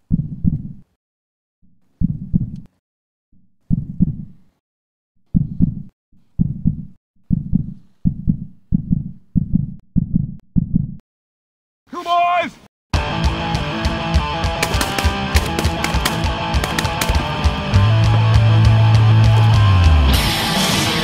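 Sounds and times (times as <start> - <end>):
heartbeat double thumps: 0.0 - 0.8, 2.0 - 2.7, 3.7 - 4.4, 5.3 - 11.0.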